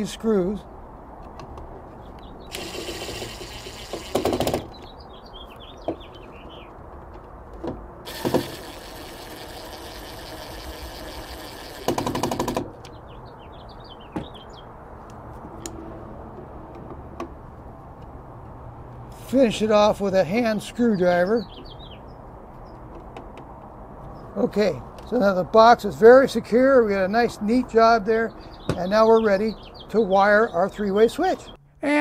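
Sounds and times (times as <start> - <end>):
impact driver motor spinning: 2.5 - 4.8, 8.1 - 12.7
impact driver rattling: 2.5 - 4.8, 8.1 - 12.8.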